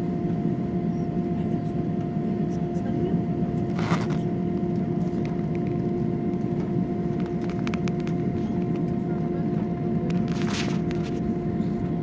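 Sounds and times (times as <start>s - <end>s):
jet engines humming: 0.0s - 12.0s.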